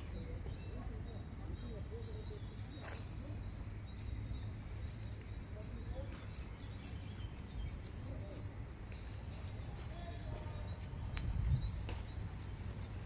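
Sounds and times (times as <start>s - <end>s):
steady low rumble: 7.1s - 13.0s.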